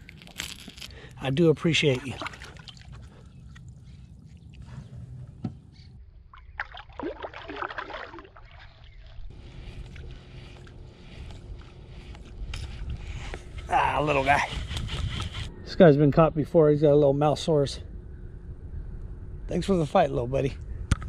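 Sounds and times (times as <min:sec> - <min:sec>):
water splashing and sloshing: 0:01.6 - 0:12.7
steady low hum: 0:09.2 - 0:21.0.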